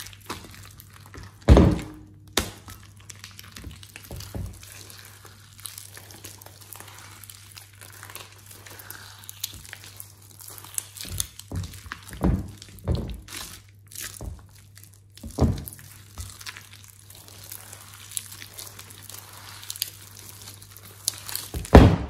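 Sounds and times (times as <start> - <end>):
slime squelching and popping: 0.0 - 22.0
squishy thud: 0.2 - 2.8, 15.2 - 17.6, 21.2 - 22.0.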